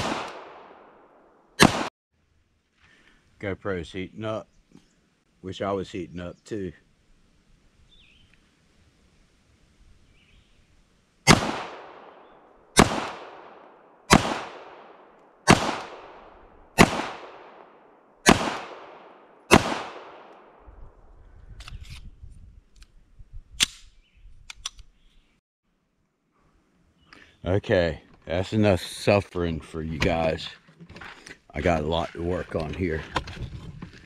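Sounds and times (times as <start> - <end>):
pistol shots with echo: 0.0 - 1.0, 1.6 - 1.9, 11.3 - 20.6
pistol handling clicks: 23.6 - 24.9.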